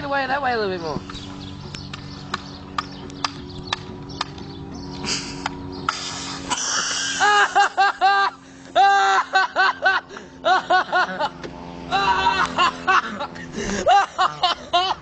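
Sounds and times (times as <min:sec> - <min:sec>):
steady low hum: 0:00.0 - 0:15.0
sharp clicks: 0:01.1 - 0:04.5
short hiss: 0:05.1 - 0:07.2
person snickering laughter: 0:06.5 - 0:15.0.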